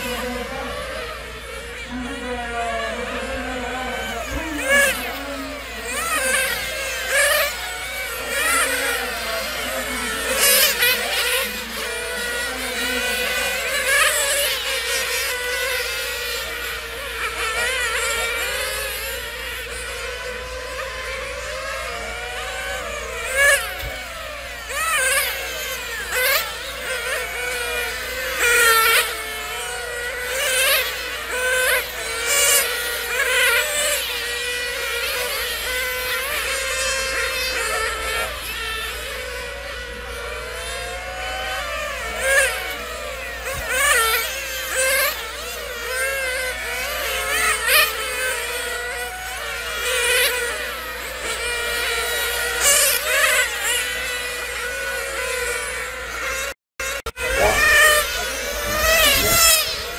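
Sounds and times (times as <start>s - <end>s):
rc car engines buzzing: 0.0s - 59.9s.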